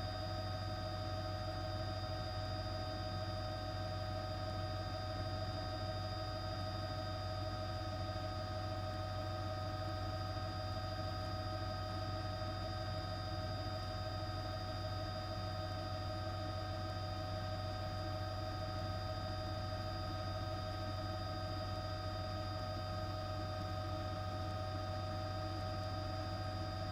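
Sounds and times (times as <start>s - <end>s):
steady low hum: 7.2s - 26.9s.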